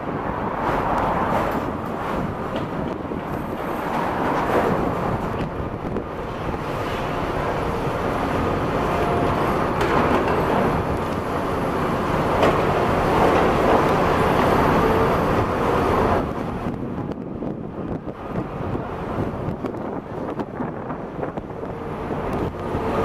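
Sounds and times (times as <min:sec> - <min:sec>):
excavator engines and hydraulics: 0:00.0 - 0:23.0
concrete rubble rumbling: 0:08.4 - 0:11.1.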